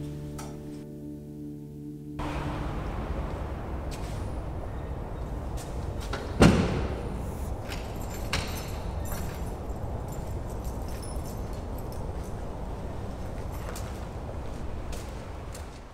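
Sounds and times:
outdoor background hum: 2.1 - 15.9
door slamming: 6.1 - 7.2.

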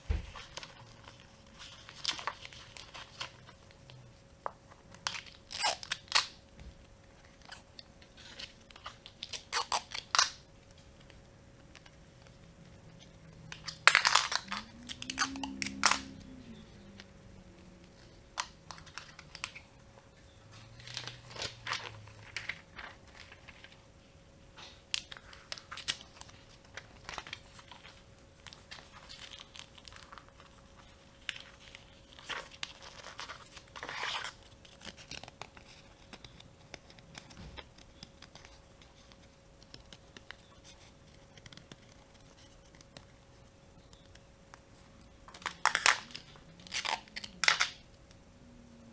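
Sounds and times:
paper rustling and crinkling: 0.0 - 3.9, 20.5 - 23.8, 24.5 - 43.1
adhesive tape ripping: 5.1 - 6.4, 9.2 - 10.4, 13.5 - 16.2, 45.6 - 47.8.

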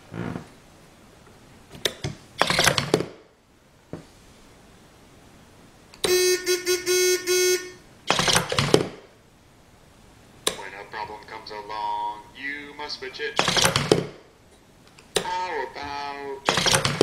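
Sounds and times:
stuttering horn-like beeping tone: 6.1 - 7.8.

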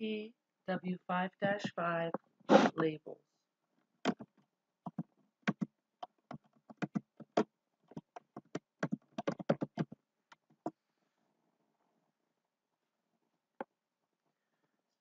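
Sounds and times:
keyboard key clicks: 6.3 - 10.0.

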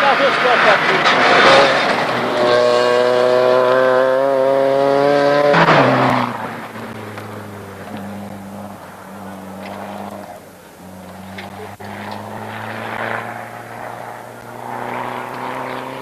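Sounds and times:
rally car engine passing at speed: 0.0 - 16.0.

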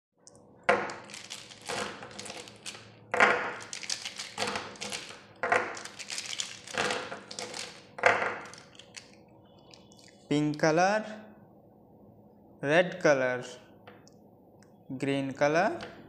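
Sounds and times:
plastic markers clattering on table: 0.7 - 10.2.

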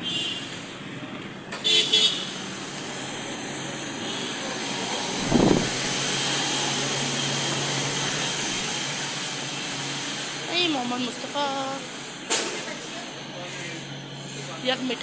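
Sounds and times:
hissing rushing noise: 5.1 - 6.3.

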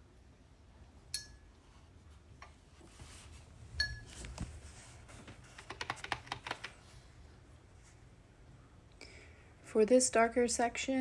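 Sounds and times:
paintbrush clinking on a dish: 1.1 - 1.5, 3.8 - 4.2.

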